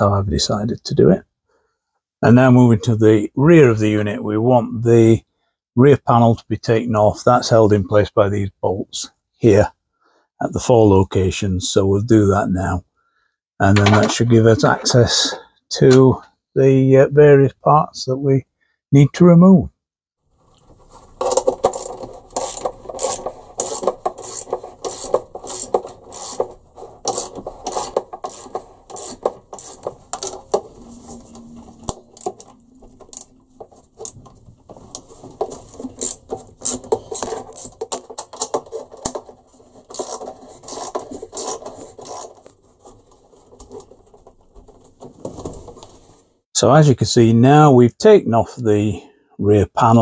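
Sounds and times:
ratchet spanner clicking: 21.3 - 30.5, 39.9 - 42.3.

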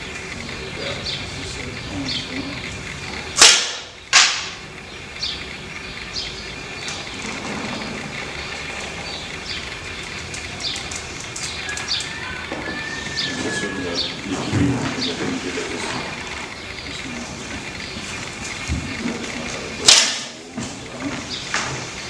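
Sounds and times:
arrow striking target: 3.4 - 4.6, 19.8 - 20.4.

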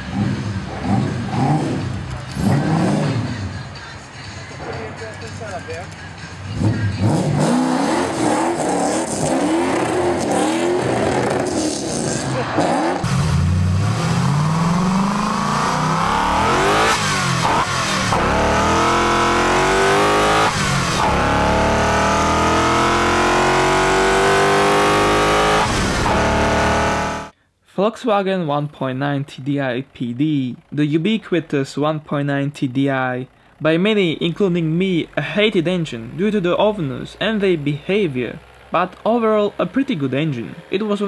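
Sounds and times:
engine accelerating through gears: 0.0 - 3.3, 6.5 - 27.3
engine revving in blips: 0.0 - 3.3, 6.5 - 27.3.

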